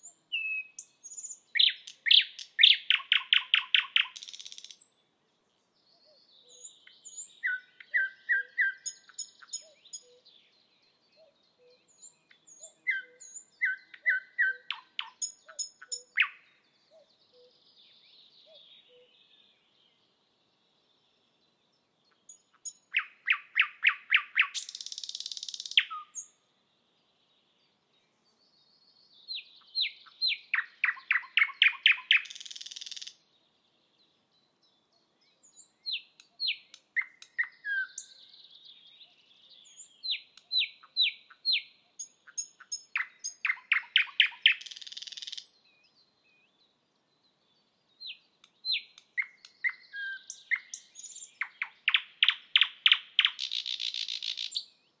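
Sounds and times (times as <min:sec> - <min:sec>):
nightingale singing: 0:00.0 - 0:05.0, 0:05.6 - 0:55.0.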